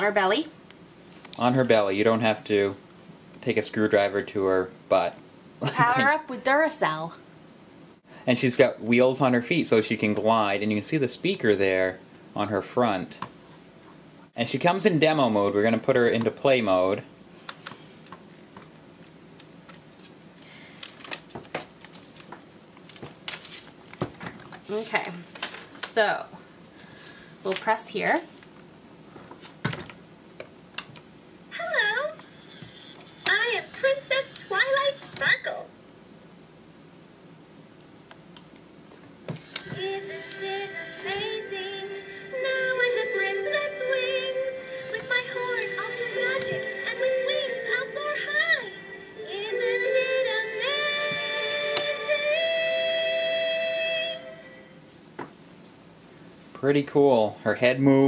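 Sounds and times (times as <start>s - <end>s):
toy playing synthesized song: 31.8s - 35.5s, 39.4s - 54.6s.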